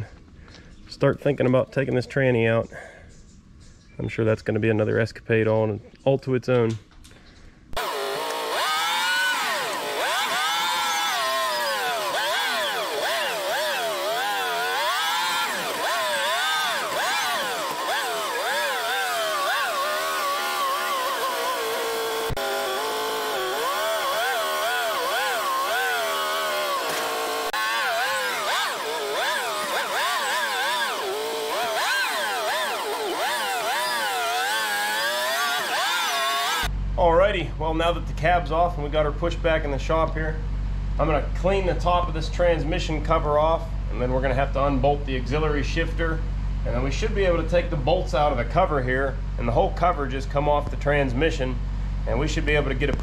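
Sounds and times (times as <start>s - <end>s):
loader engine running hard: 7.8s - 36.7s.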